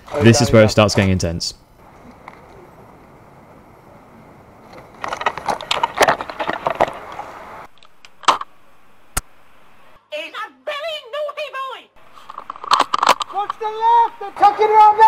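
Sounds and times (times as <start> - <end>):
rifle gear clattering: 4.8 - 7.2.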